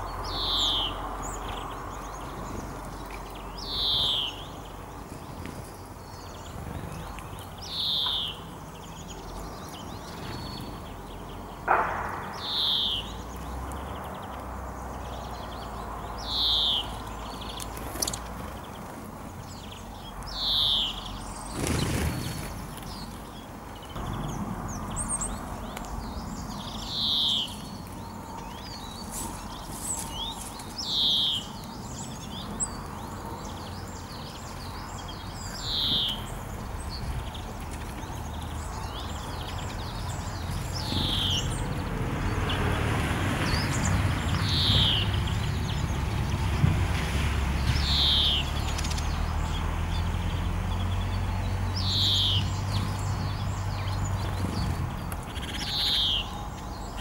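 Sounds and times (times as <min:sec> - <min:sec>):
songbird falling call: 0:11.6 - 0:14.0.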